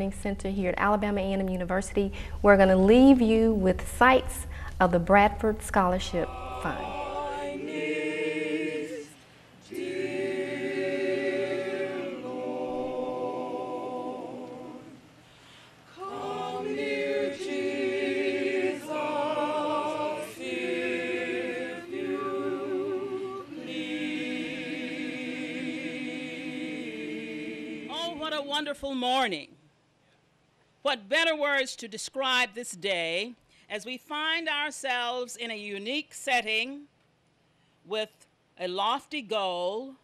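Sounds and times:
choir singing unaccompanied: 0:06.0 - 0:15.2, 0:15.9 - 0:28.2.

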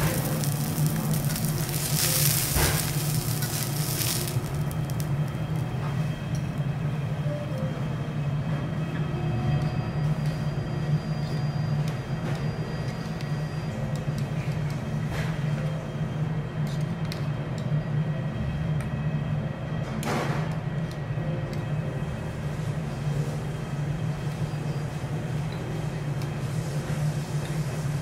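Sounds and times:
steak sizzling on a griddle: 0:00.0 - 0:05.3
steady low hum: 0:00.0 - 0:11.0.

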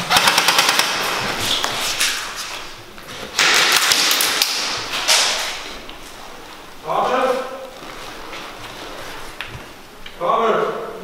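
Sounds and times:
airsoft rifle rapid clicks: 0:00.1 - 0:01.0
rustle of gear and movement: 0:07.7 - 0:09.8.

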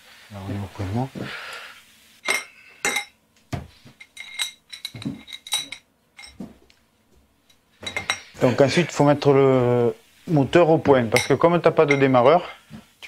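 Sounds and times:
metal clinks and taps: 0:02.2 - 0:03.2, 0:03.9 - 0:06.5, 0:07.4 - 0:08.3, 0:11.1 - 0:12.2.

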